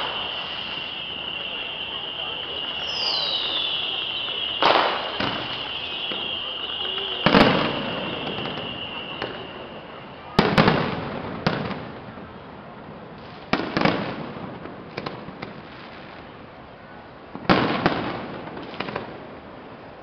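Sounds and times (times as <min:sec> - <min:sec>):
sharp firework cracks: 0:00.0 - 0:09.8
firework shells booming: 0:00.0 - 0:12.0.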